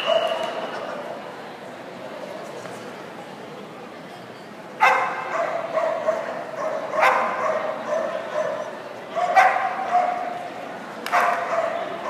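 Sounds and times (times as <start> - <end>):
dog barking excitedly: 4.8 - 10.4, 11.1 - 12.0.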